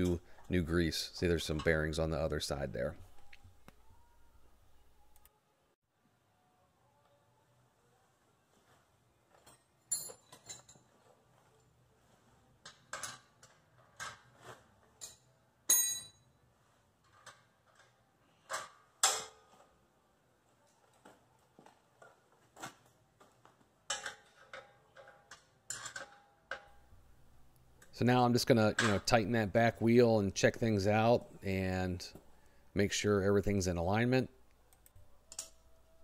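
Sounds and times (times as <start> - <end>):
metallic clicks and clinks: 9.4 - 11.0, 34.7 - 35.8.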